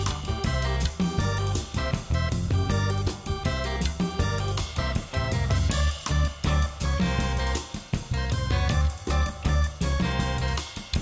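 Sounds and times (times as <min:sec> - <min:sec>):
bass: 0:00.0 - 0:11.0
drums: 0:00.0 - 0:11.0
plucked guitar-like instrument: 0:00.0 - 0:11.0.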